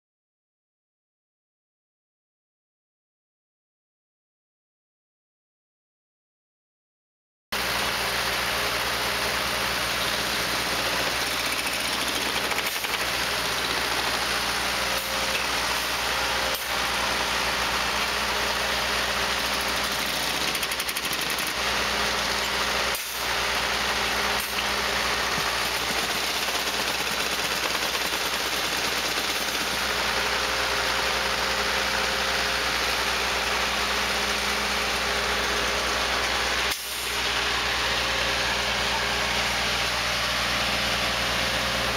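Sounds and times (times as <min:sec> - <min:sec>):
machine engine running: 0:07.6 - 0:41.9.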